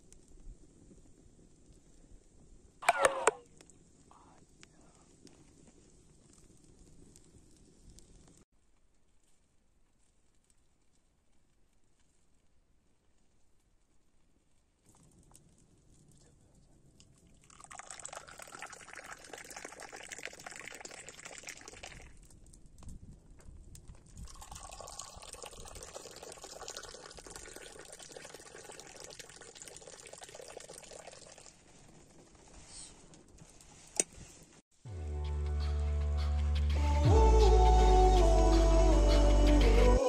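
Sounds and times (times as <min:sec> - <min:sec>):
sharp click: 0:02.8 - 0:03.4
tea pouring into a cup: 0:17.4 - 0:22.1, 0:24.2 - 0:31.6
music: 0:34.9 - 0:40.0.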